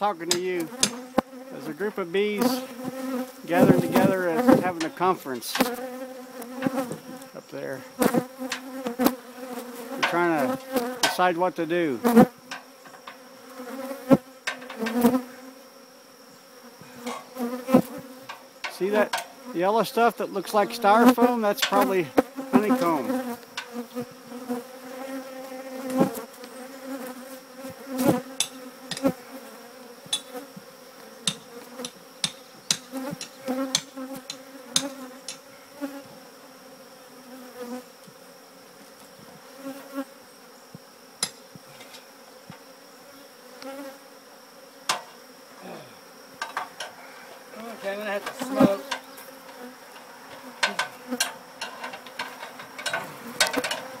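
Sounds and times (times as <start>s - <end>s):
honeybees buzzing: 0.0s - 54.0s.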